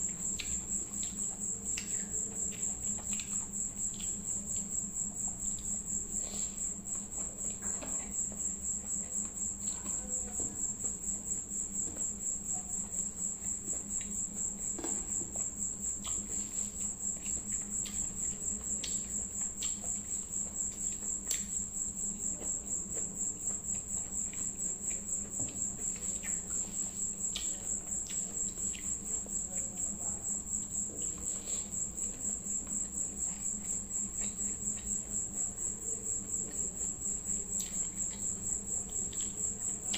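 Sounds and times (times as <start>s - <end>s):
wet clicks of eating by hand: 0.0s - 4.7s, 14.8s - 21.6s, 22.4s - 30.0s, 32.6s - 35.4s, 37.3s - 39.9s
insect chirping trill: 0.0s - 39.9s.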